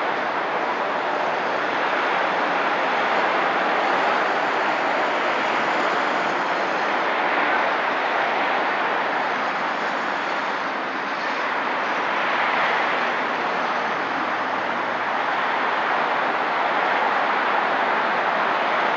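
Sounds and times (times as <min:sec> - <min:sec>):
road traffic tyre hiss: 0:00.0 - 0:18.9
traffic engine noise: 0:00.0 - 0:18.9.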